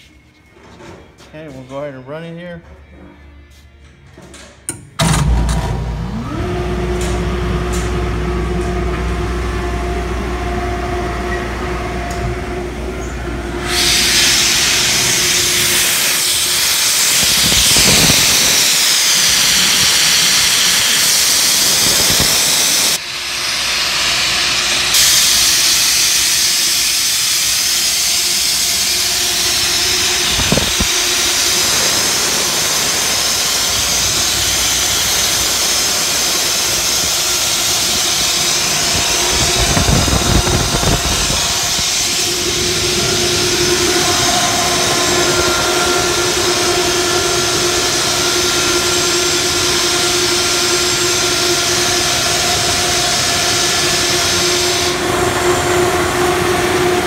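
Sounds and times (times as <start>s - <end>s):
air compressor humming: 4.6s - 57.0s
compressed air hissing out: 13.6s - 55.0s.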